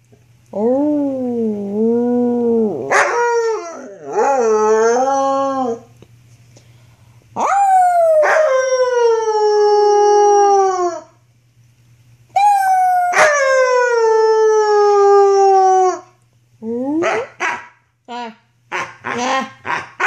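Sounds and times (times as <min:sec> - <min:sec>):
wolfdog howling: 0:00.6 - 0:05.9.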